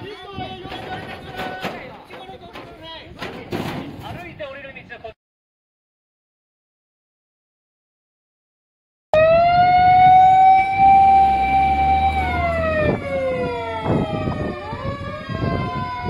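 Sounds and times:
fire engine siren wailing: 9.2s - 16.0s
rising siren tone: 9.2s - 16.0s.

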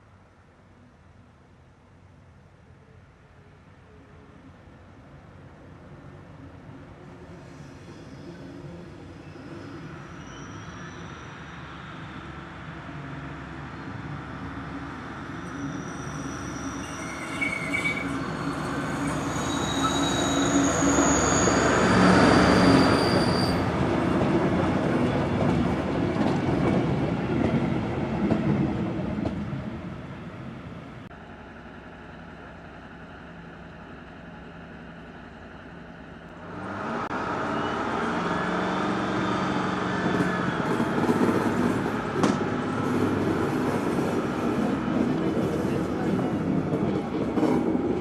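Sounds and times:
diesel locomotive engine: 5.4s - 48.0s
train wheels squealing: 7.3s - 12.8s, 15.1s - 23.9s, 37.5s - 42.0s.

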